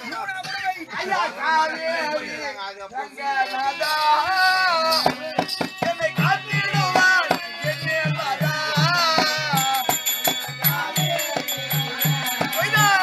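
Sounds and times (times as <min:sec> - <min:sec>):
high metallic ringing: 0:08.4 - 0:13.0.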